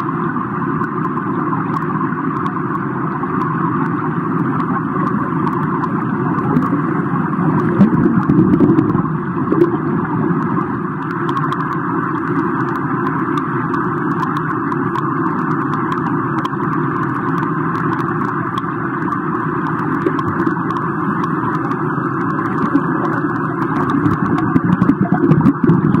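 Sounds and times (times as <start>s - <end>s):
underwater pool water rumble: 0.0s - 26.0s
faint clicks: 0.8s - 2.8s, 4.6s - 6.8s, 10.4s - 26.0s.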